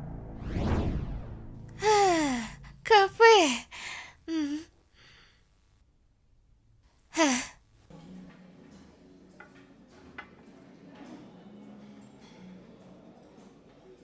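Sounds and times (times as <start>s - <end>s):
woman sighing: 1.8s - 5.2s, 7.2s - 7.6s.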